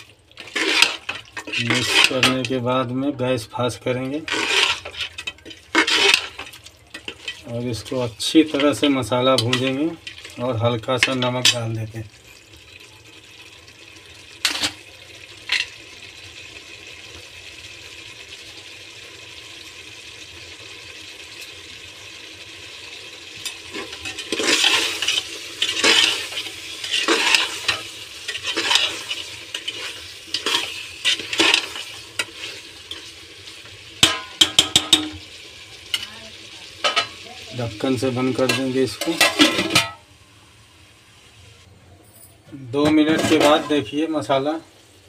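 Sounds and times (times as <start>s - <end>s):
ladle scraping pot: 0.0s - 2.6s, 3.8s - 11.8s, 23.4s - 35.2s, 38.3s - 40.0s, 42.8s - 43.9s
meat sizzling in a pot: 0.0s - 41.7s, 42.7s - 45.0s.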